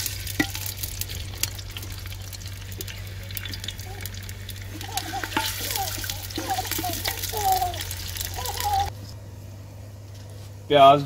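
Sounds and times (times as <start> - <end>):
onions sizzling in hot oil: 0.0 - 8.9
wooden spatula stirring: 0.0 - 8.9.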